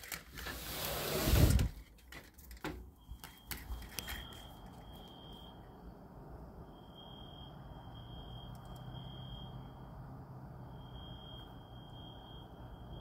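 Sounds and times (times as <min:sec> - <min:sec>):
window sash sliding open: 0:00.0 - 0:02.0.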